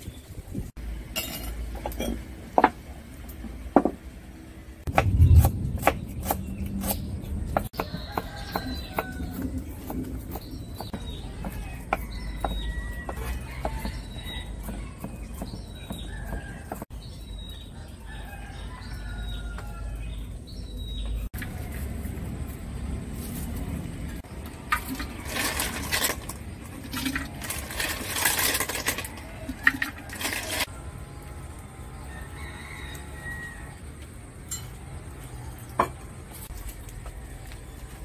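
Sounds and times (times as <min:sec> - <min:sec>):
kitchenware rustling and clattering: 0:00.4 - 0:02.9, 0:23.2 - 0:30.7
low rumble: 0:04.6 - 0:07.8
small birds chirping: 0:05.0 - 0:21.9.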